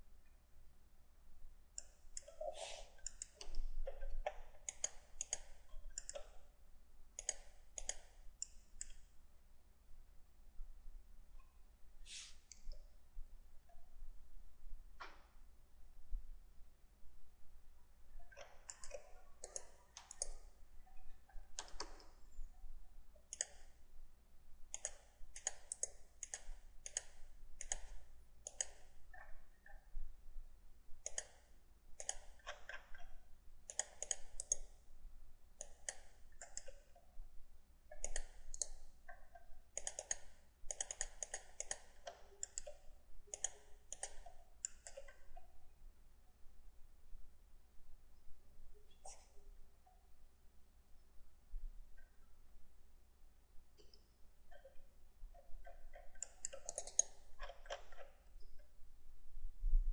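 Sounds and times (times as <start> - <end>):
computer mouse clicking: 1.8 - 6.5, 7.2 - 9.1, 18.2 - 22.2, 23.3 - 23.8, 24.7 - 29.9, 31.0 - 34.7, 35.6 - 37.1, 37.9 - 45.5, 48.9 - 49.4, 53.8 - 58.8.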